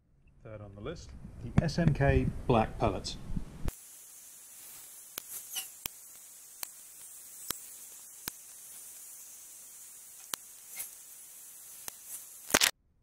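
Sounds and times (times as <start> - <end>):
steady hiss: 1.5 - 12.7
faint chirps: 3.8 - 12.5.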